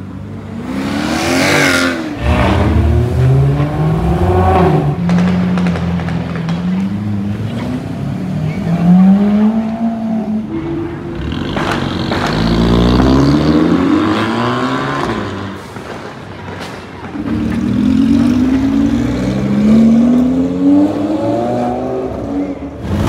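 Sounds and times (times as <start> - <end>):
car engine revving: 0.6 - 15.6.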